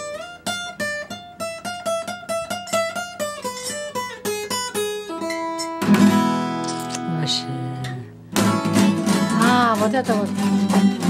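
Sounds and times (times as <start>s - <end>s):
acoustic guitar melody: 0.0s - 11.0s.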